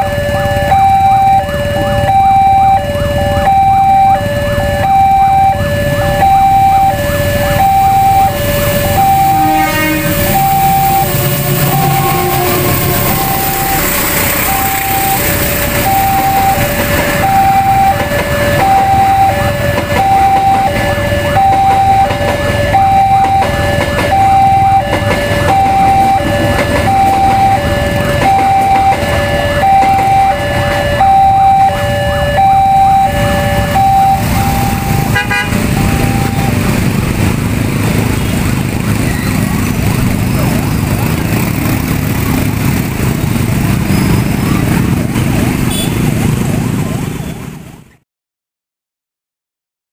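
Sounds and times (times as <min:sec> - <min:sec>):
two-tone crossing alarm chime: 0:00.0 - 0:36.8
passing train rumble: 0:00.0 - 0:48.0.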